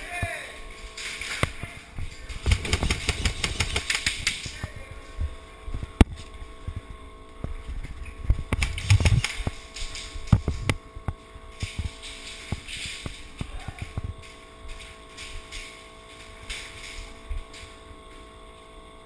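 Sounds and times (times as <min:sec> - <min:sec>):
knocks and rustle of movement: 0:00.0 - 0:18.8
faint steady hum: 0:00.0 - 0:19.0
airsoft guns firing: 0:02.3 - 0:04.5.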